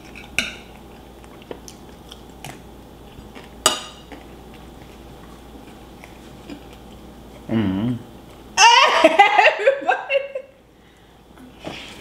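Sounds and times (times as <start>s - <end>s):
man chewing: 0.0s - 8.5s.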